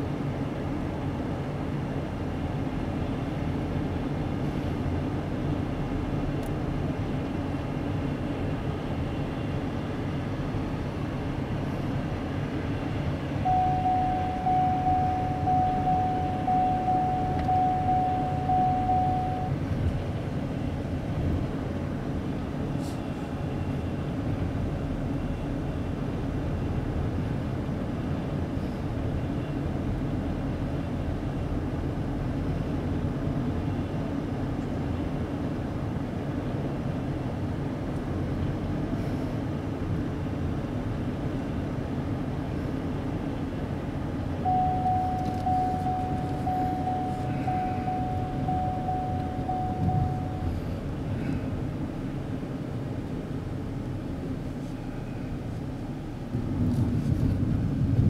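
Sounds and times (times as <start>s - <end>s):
car road and engine noise: 0.0s - 58.0s
electronic beeping: 13.4s - 19.6s, 44.4s - 50.5s.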